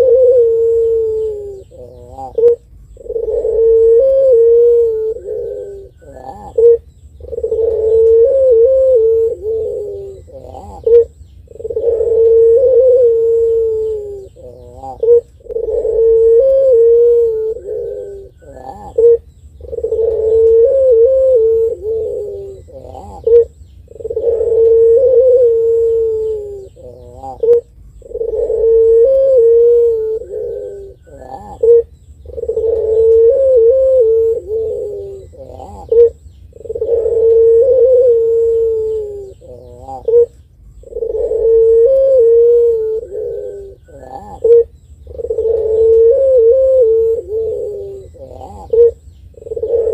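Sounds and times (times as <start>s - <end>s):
dove cooing: 0.0s - 49.9s.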